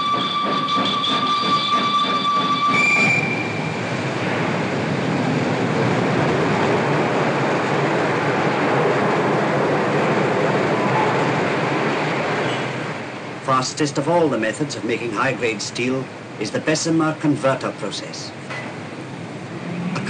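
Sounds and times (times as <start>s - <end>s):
whistle tone: 0.0s - 3.7s
train wheels rumbling on track: 0.0s - 20.0s.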